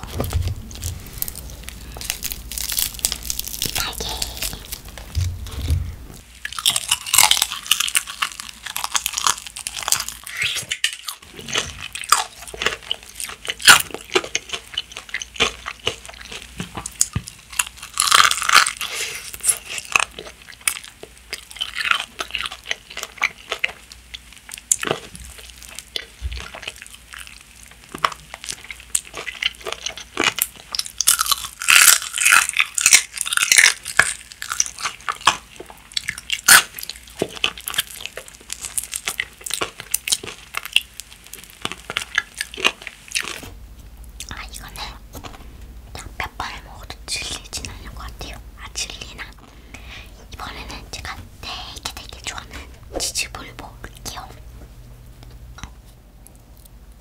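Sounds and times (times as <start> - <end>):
crunching and chewing fried chicken: 0.0 - 43.5, 44.1 - 54.5.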